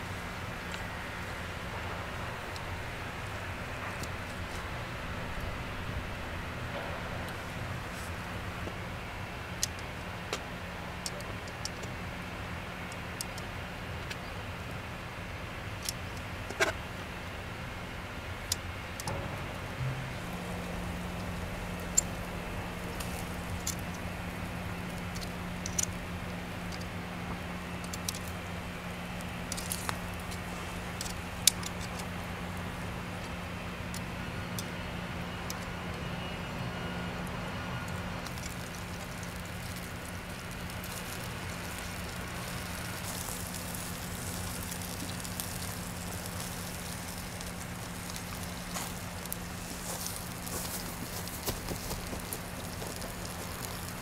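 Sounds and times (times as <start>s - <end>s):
charcoal crackling: 0.0s - 54.0s
low hum: 17.8s - 54.0s
meat sizzling on a grill: 19.4s - 34.3s, 37.1s - 54.0s.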